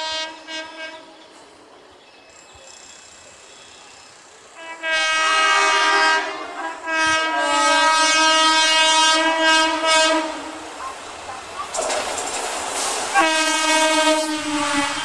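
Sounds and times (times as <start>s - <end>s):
train horn blasts: 0.0s - 1.3s, 4.5s - 10.6s, 13.1s - 15.0s.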